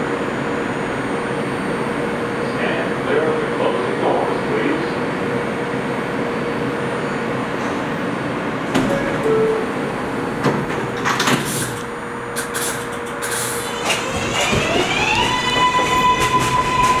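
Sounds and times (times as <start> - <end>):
train hum: 0.0 - 17.0
two-note falling chime: 8.8 - 10.2.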